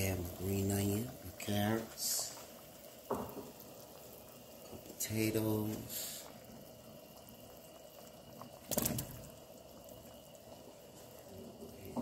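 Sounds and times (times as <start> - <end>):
liquid bubbling: 0.0 - 12.0
potato splashing into pot: 8.6 - 9.3.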